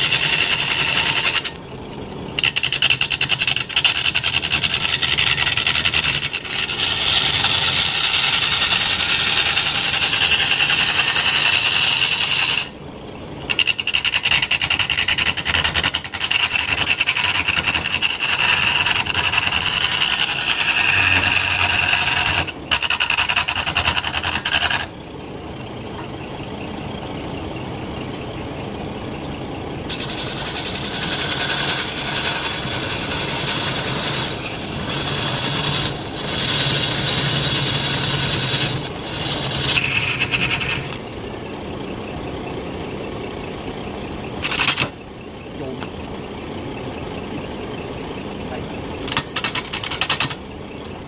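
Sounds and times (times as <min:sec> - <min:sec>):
turning tool cutting wood: 0:00.0 - 0:01.6, 0:02.4 - 0:12.8, 0:13.5 - 0:24.9, 0:29.9 - 0:41.0, 0:44.4 - 0:45.0
lathe running: 0:00.0 - 0:12.8, 0:13.4 - 0:25.1, 0:29.8 - 0:41.4.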